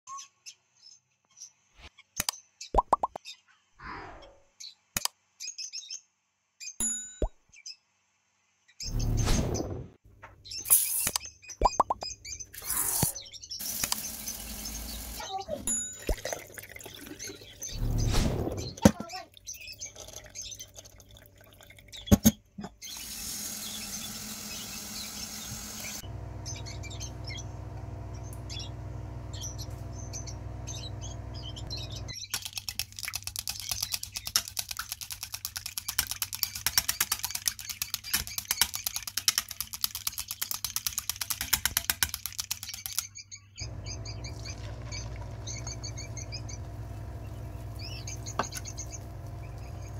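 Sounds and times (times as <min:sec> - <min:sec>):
small birds chirping: 0:10.3 - 0:49.9
oil crackling and sizzling: 0:12.6 - 0:15.2, 0:43.6 - 0:49.9
low hum: 0:43.6 - 0:49.9.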